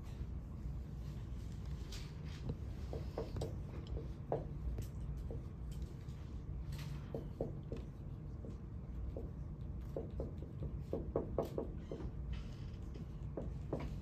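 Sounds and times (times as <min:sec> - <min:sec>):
low room hum: 0:00.0 - 0:14.0
scratchy writing on a board: 0:07.0 - 0:12.2.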